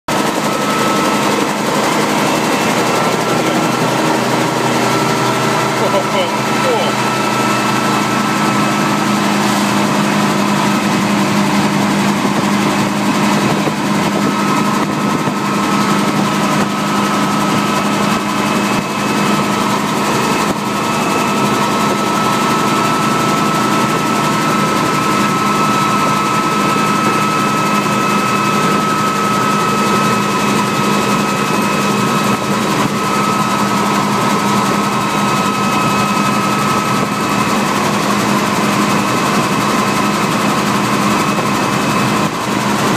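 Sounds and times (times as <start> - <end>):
helicopter engine and rotor: 0.1 - 42.9
high whine over low hum: 0.1 - 42.9.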